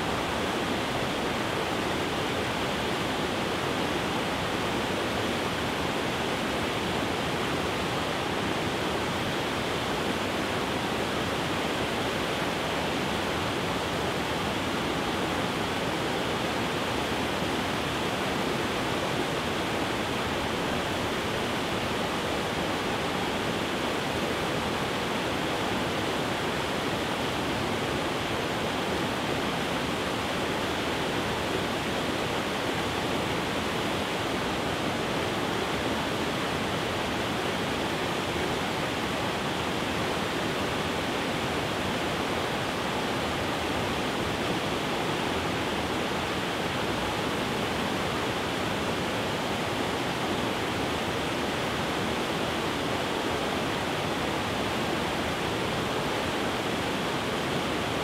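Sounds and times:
river rushing over rocks: 0.0 - 58.0.

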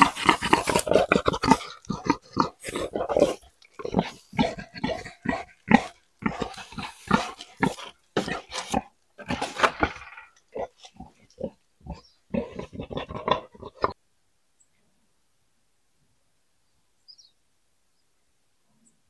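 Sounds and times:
wild boar grunting: 0.0 - 14.0.

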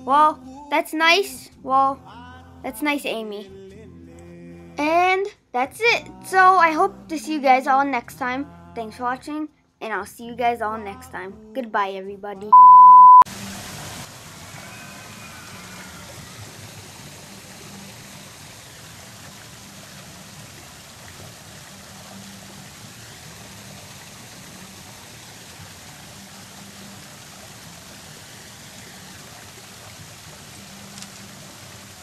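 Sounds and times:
water trickling: 13.3 - 32.0.

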